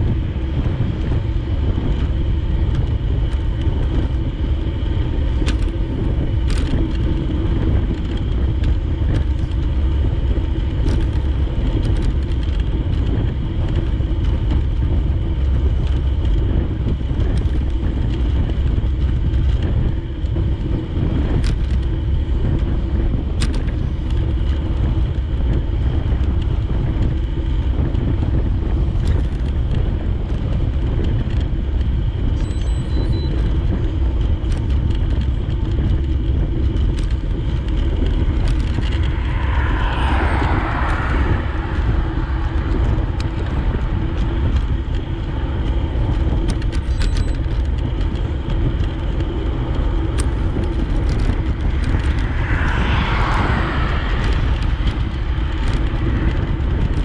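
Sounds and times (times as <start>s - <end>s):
road noise: 0.0s - 32.4s, 33.3s - 57.0s
wind rumble: 0.0s - 57.0s
vehicle passing: 37.4s - 45.7s, 50.2s - 56.8s.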